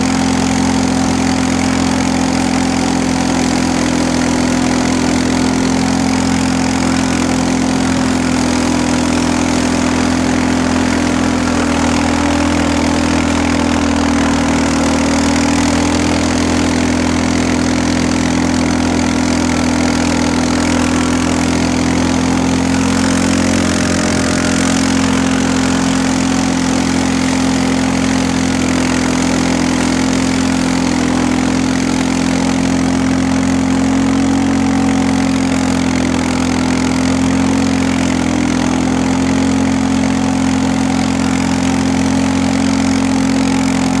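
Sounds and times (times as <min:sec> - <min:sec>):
vehicle engine running steadily: 0:00.0 - 0:44.0.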